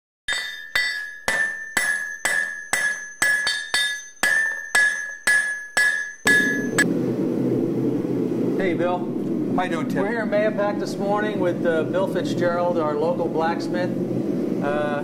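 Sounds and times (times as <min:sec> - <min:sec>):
hammer ringing on anvil: 0:00.3 - 0:06.8
low rumble: 0:06.4 - 0:15.0.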